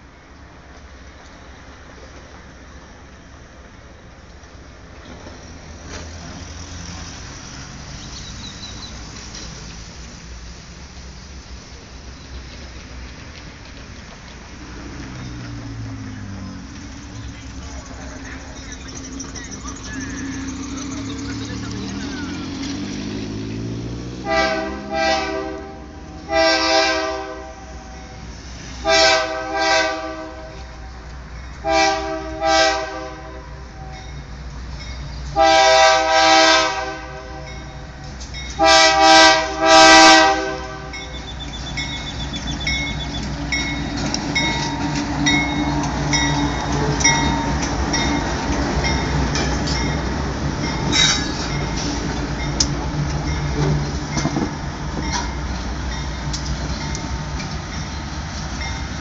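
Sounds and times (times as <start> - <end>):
diesel engines running: 5.3 - 27.5, 34.3 - 59.0
wheels clicking over rail joints: 11.7 - 24.8, 40.2 - 59.0
locomotive air horn blasts: 24.2 - 28.2, 28.8 - 30.9, 31.6 - 33.9, 35.4 - 37.9, 38.6 - 41.3.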